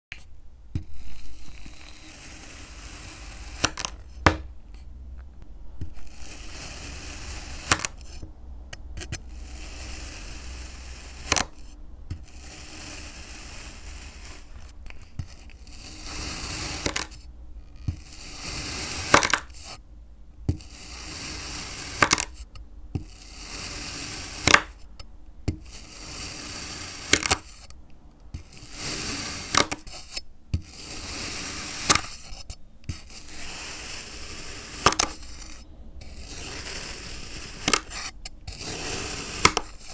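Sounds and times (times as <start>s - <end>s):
knife slicing crumbly block: 36.1s - 39.9s.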